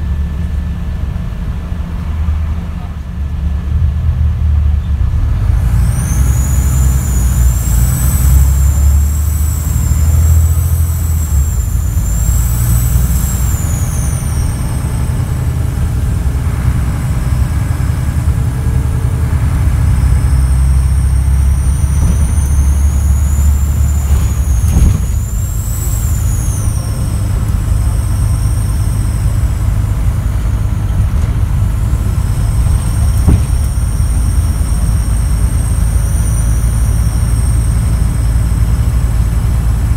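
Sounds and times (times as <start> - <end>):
diesel bus engine rumble: 0.0 - 39.9
high turbo whistle: 4.9 - 39.9
sharp knock: 33.2 - 33.9.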